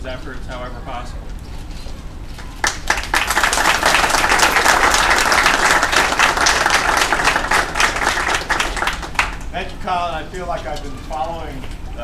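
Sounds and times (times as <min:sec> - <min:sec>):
audience applauding: 0:02.4 - 0:09.5.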